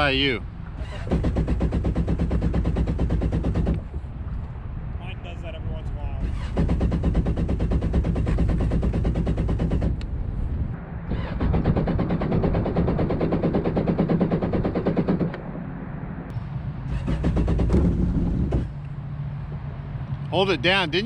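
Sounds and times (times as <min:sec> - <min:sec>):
jet ski engine pulsing: 0:16.8 - 0:19.0.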